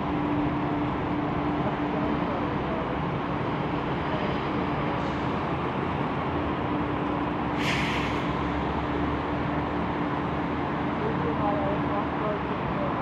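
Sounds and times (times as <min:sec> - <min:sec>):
jet engines rumbling: 0:00.0 - 0:13.0
short hiss: 0:07.6 - 0:08.4.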